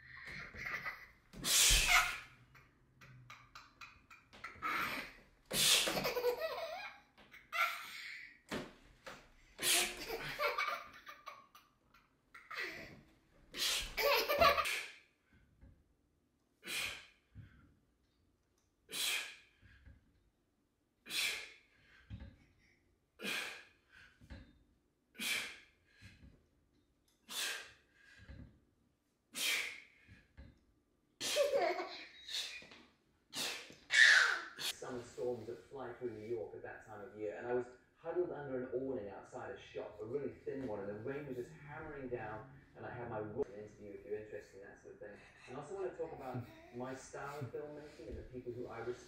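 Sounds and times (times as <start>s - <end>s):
laughter: 9.8s - 11.4s, 14.0s - 14.8s.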